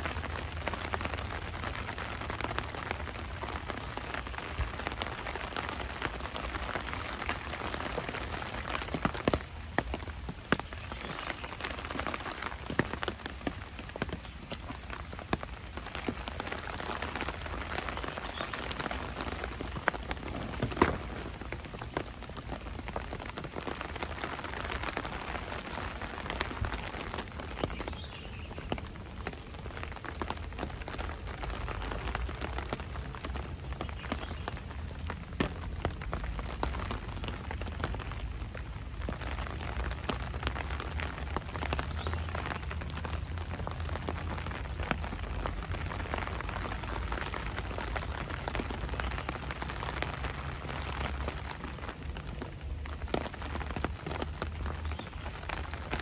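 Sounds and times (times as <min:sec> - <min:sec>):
raindrops ticking: 0:00.0 - 0:56.0
steady rain falling: 0:00.0 - 0:56.0.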